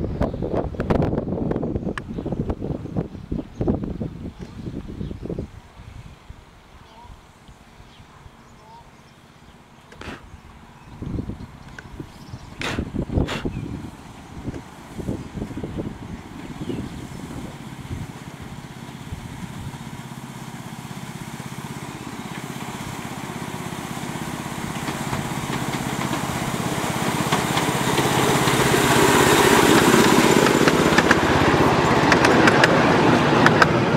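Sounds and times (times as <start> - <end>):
small petrol engine running: 13.5 - 33.9
sharp clicks of carriages: 30.4 - 33.9.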